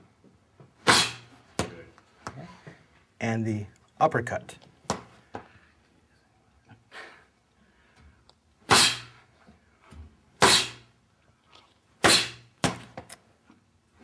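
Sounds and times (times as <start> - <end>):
punches smacking focus mitt: 12.0 - 13.1.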